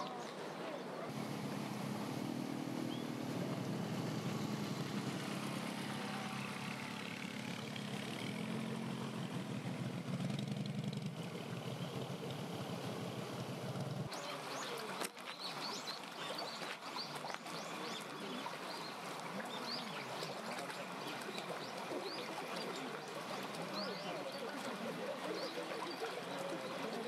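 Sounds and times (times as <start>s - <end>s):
vehicle engine running low: 1.1s - 14.7s.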